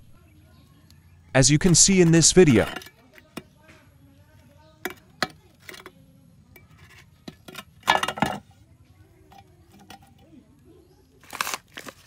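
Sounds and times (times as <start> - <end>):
metal parts clinking on concrete: 2.1 - 3.4, 6.6 - 8.4.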